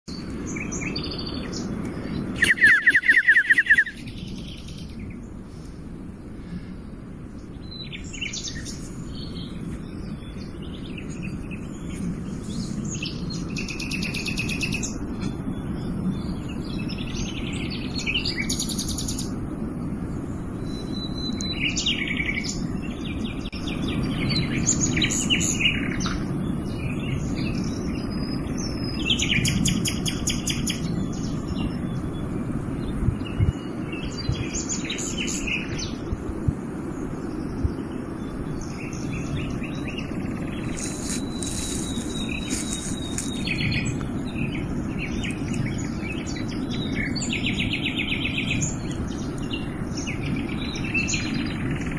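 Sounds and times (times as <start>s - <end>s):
birds chirping and trilling: 0.1s - 51.9s
steady low rumble: 0.1s - 51.9s
loud fast pulsing bird trill: 2.4s - 4.6s.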